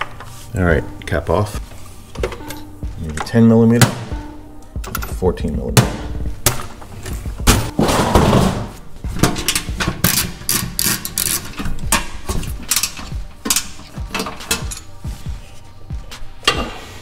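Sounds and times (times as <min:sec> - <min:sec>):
socket ratchet clicking: 0:09.5 - 0:15.0.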